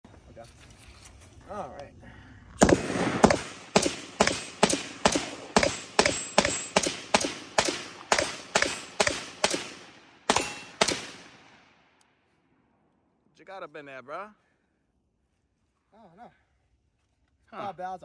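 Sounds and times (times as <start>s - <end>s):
rifle shots with echo: 2.6s - 12.0s.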